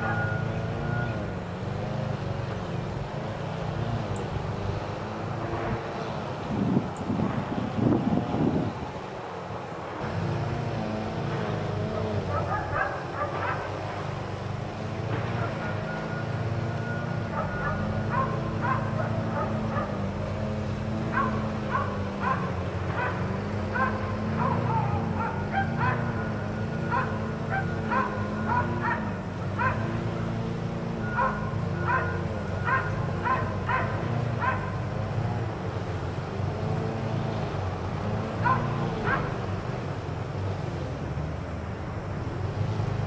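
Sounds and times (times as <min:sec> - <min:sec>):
dogs barking and yipping: 0:00.0 - 0:01.2, 0:12.0 - 0:14.2, 0:15.2 - 0:20.1, 0:21.0 - 0:30.3, 0:31.0 - 0:35.0, 0:38.3 - 0:39.5.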